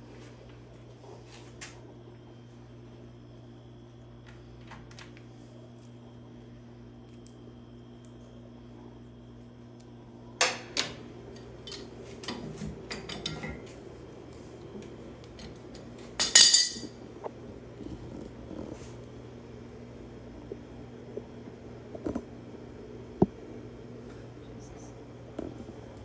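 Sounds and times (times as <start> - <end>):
steady low hum: 0.0 - 26.0
metal tools clanking on metal: 11.4 - 13.6, 16.2 - 16.9.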